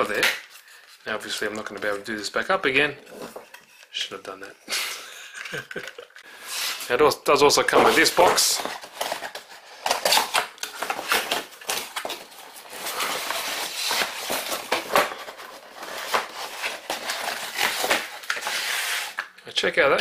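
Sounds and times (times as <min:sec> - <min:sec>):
packaging rustling and crinkling: 0:05.4 - 0:19.3.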